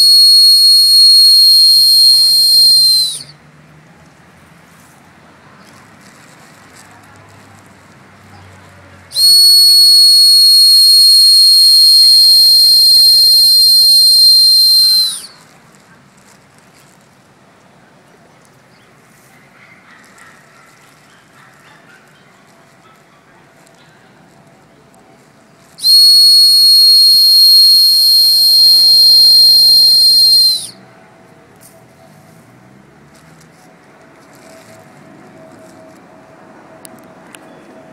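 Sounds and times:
long high whistle blast: 0.0 - 3.3, 9.1 - 15.4, 25.8 - 30.8.

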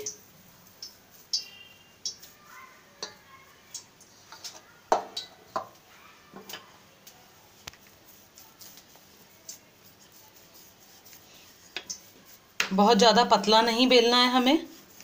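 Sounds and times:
kitchen utensils knocking and clicking: 4.3 - 5.8.

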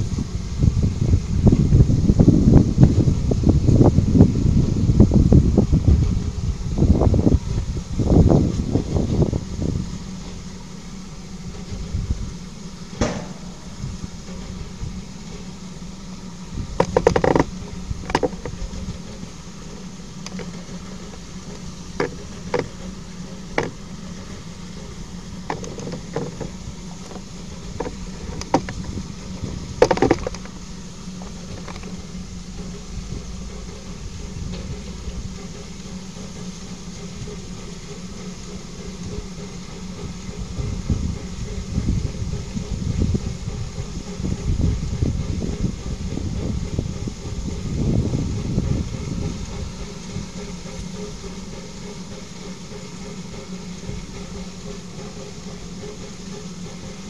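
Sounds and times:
train humming and hissing: 0.0 - 57.0
sharp knocks: 13.0 - 14.6
rattling: 13.0 - 14.8.

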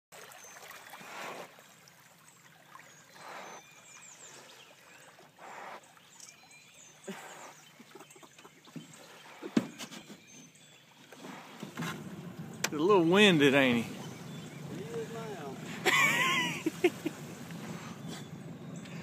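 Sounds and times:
birds chirping: 0.3 - 19.0
wild hog breathing hard: 0.9 - 1.6, 3.1 - 4.6, 5.4 - 6.0, 7.1 - 7.7, 17.2 - 19.0.

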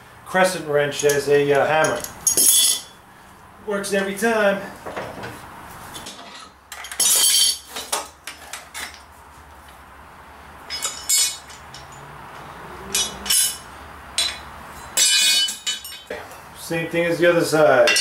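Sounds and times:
metal blade and wrench clanking: 1.0 - 3.0, 6.0 - 7.9, 10.7 - 12.1, 12.8 - 16.4.

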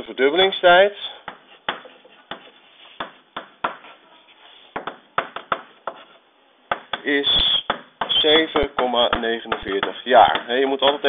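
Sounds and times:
chalk tapping on blackboard: 1.2 - 4.0, 4.7 - 7.0, 7.6 - 11.0
chalk scraping: 1.5 - 3.2.

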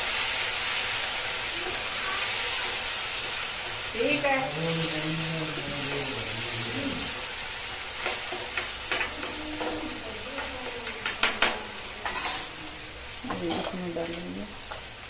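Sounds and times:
vegetables sizzling in oil: 0.0 - 15.0
spatula scraping pan: 12.0 - 12.6.

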